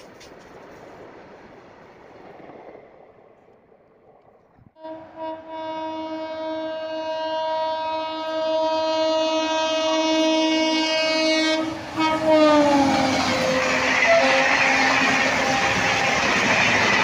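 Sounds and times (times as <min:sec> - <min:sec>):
train rushing and clattering past: 0:00.0 - 0:04.5, 0:11.6 - 0:17.0
train horn blast: 0:04.8 - 0:16.4.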